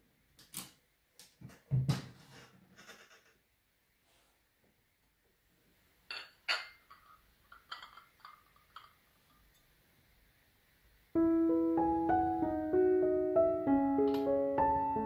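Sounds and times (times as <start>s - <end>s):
tableware clinking: 6.1s - 9.0s
piano background music: 11.2s - 15.0s.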